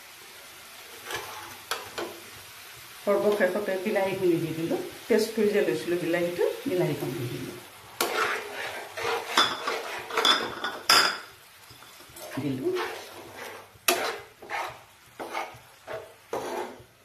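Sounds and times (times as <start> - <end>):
metal spatula scraping pan: 1.0 - 2.1, 8.0 - 16.9.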